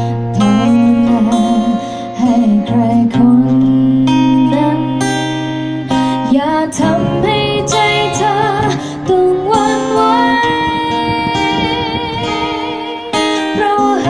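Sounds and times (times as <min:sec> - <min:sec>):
acoustic guitar strumming: 0:00.0 - 0:14.0
woman singing into a microphone: 0:00.0 - 0:14.0
steady bass note: 0:06.8 - 0:13.1.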